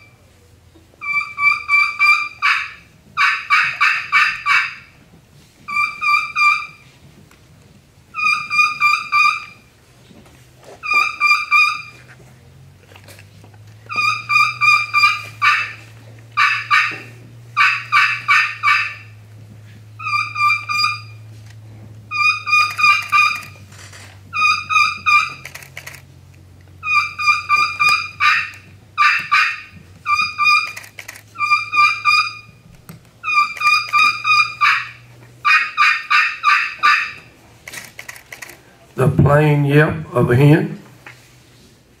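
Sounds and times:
friction turkey call notes: 0.9s - 7.0s, 8.1s - 9.7s, 10.7s - 12.1s, 13.8s - 21.4s, 22.0s - 26.0s, 26.7s - 37.5s.

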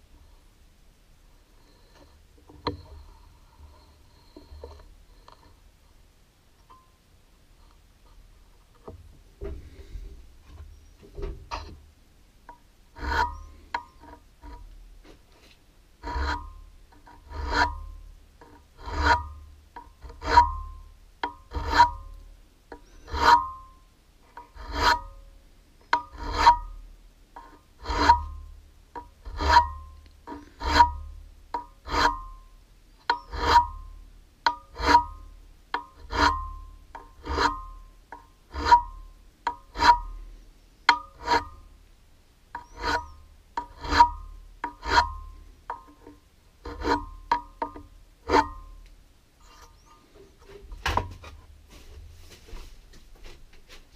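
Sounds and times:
file rasping on metal: 13.0s - 14.6s, 16.0s - 22.2s, 22.8s - 23.7s, 24.4s - 25.2s, 25.9s - 26.8s, 27.4s - 32.4s, 33.0s - 33.9s, 34.5s - 37.9s, 38.5s - 40.2s, 40.9s - 41.6s, 42.6s - 48.7s.

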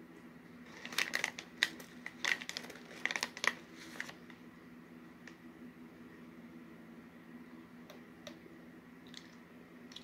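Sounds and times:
plastic bag crinkling: 0.7s - 4.2s.

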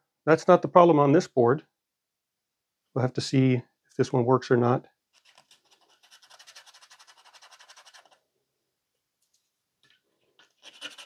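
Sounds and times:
wire brush scrubbing: 10.6s - 11.0s.

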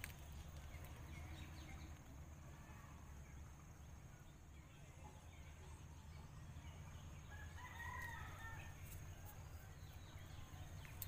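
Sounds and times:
faint rooster crowing: 7.2s - 10.0s.

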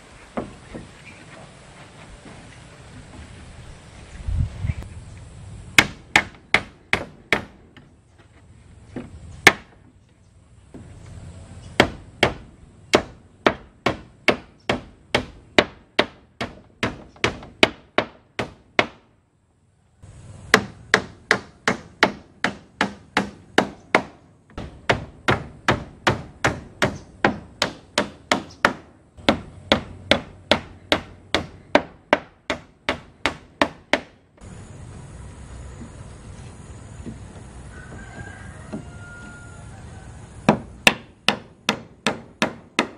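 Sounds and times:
hammer driving nails into wood: 40.5s - 42.9s.

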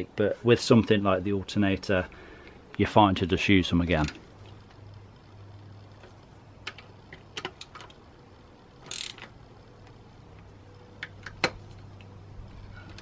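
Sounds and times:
hand ratchet clicking: 8.8s - 9.3s.

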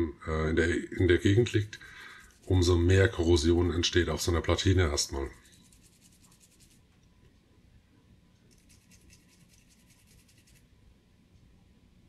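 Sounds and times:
toothbrush scrubbing circuit board: 1.2s - 3.7s, 4.8s - 6.8s, 8.5s - 10.6s.

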